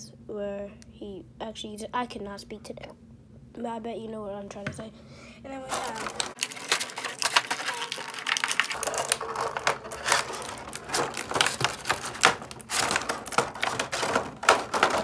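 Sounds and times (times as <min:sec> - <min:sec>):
plastic packaging crinkling: 0:05.7 - 0:15.0.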